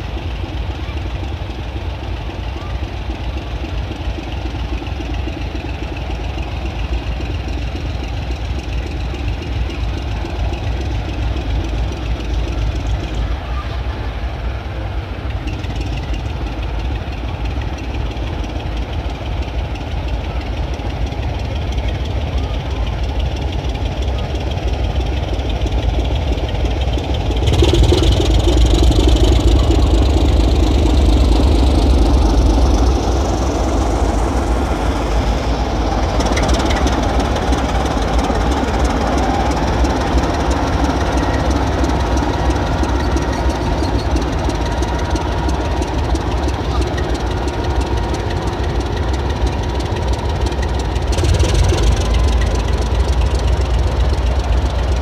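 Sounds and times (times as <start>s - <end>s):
diesel locomotive engine running: 0.0s - 55.0s.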